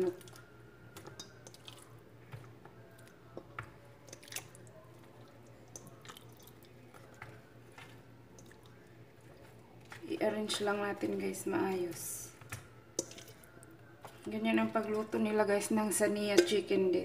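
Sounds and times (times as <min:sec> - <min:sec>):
wet squishes of raw chicken: 0:00.0 - 0:10.7, 0:12.4 - 0:15.0.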